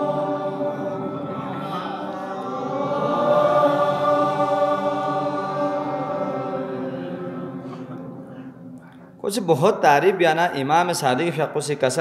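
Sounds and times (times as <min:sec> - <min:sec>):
congregation chanting: 0:00.0 - 0:09.3.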